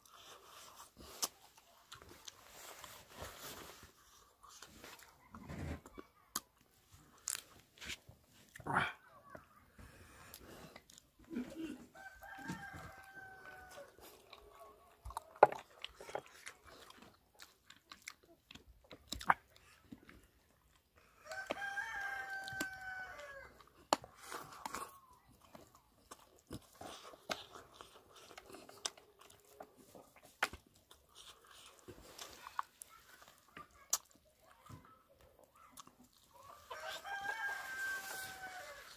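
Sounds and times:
crunchy chewing and biting: 0.0s - 8.9s, 10.0s - 34.6s, 35.2s - 38.9s
rooster crowing: 12.0s - 14.0s, 21.2s - 23.5s, 36.6s - 38.9s.

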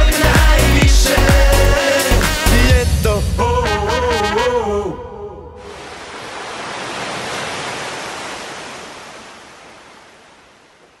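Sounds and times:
sea waves breaking on beach: 5.6s - 11.0s.

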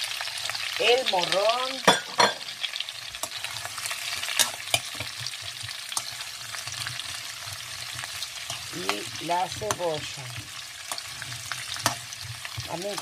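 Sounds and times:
vegetables sizzling in oil: 0.0s - 13.0s
utensil clicks and knocks in pan: 9.6s - 13.0s.

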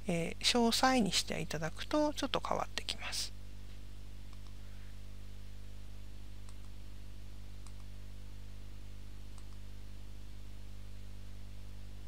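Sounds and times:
low electrical hum: 0.0s - 12.0s
computer mouse clicks: 4.3s - 4.6s, 6.4s - 6.8s, 7.6s - 7.9s, 9.3s - 9.6s.

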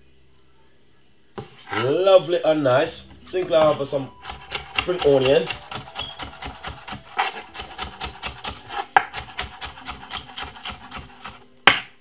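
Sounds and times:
knife chopping on wooden board: 3.4s - 12.0s.

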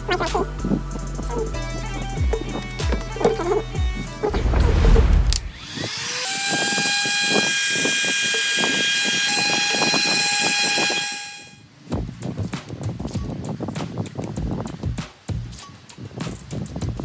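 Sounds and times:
heat gun hissing and whining: 5.3s - 11.6s.

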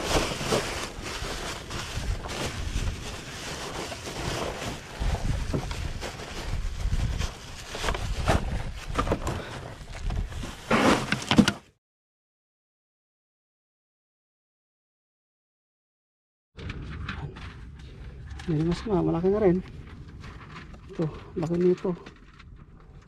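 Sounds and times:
plastic bag rustling: 0.0s - 11.6s
wind buffeting microphone: 4.9s - 9.2s.

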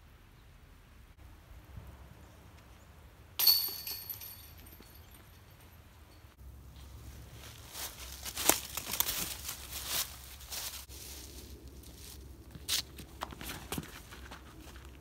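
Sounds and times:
footstep scuffs: 6.8s - 15.0s
footsteps crunching dry leaves: 6.8s - 15.0s.

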